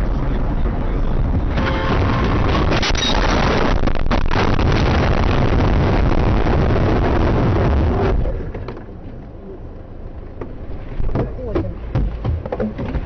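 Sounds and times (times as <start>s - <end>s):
loud rushing noise: 0.0s - 8.5s.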